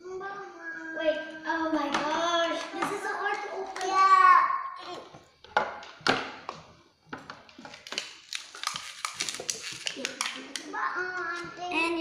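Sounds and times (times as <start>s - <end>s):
toy packaging crinkling: 7.7s - 10.8s.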